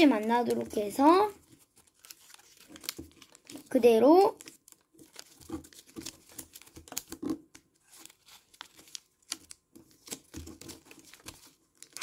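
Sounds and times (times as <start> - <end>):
paper being folded: 0.0 - 12.0.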